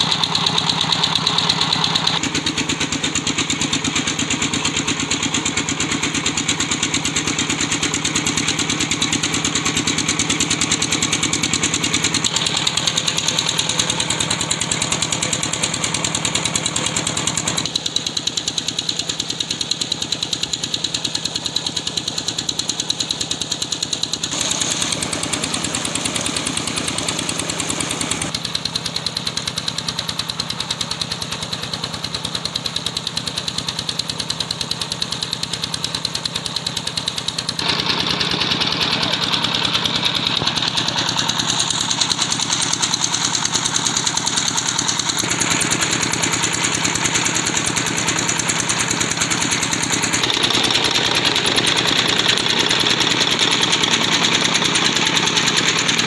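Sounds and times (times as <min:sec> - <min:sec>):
diesel engine knocking: 0:00.0 - 0:56.0.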